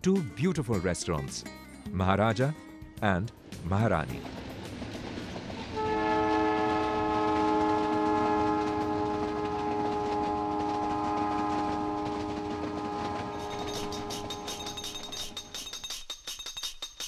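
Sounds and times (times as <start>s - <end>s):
train running: 2.4s - 17.0s
multi-note train horn: 5.8s - 14.8s.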